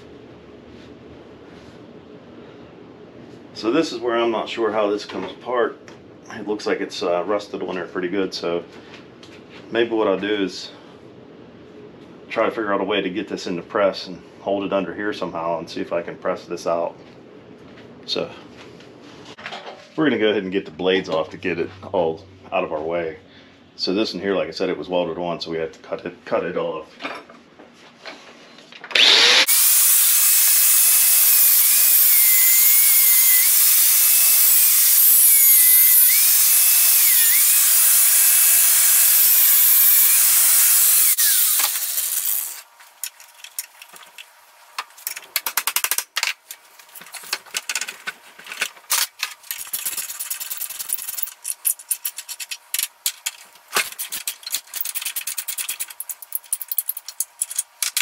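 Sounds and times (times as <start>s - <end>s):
angle grinder grinding metal: 28.9s - 42.7s
wrench clicking on metal: 49.0s - 58.0s.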